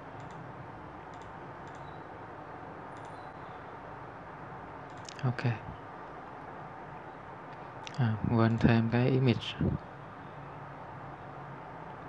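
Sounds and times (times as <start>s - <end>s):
steady background hiss: 0.0s - 12.0s
computer mouse clicks: 0.2s - 0.4s, 1.1s - 2.0s, 2.9s - 3.3s, 4.9s - 5.2s.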